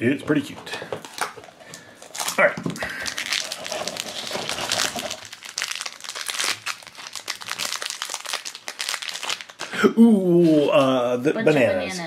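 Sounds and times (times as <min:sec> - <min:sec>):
plastic wrapper crinkling: 0:00.8 - 0:09.8.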